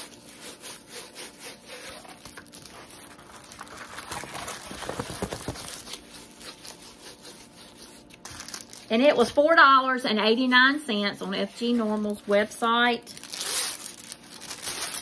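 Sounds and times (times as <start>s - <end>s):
canvas rustling and crinkling: 2.0s - 6.1s, 11.0s - 15.0s.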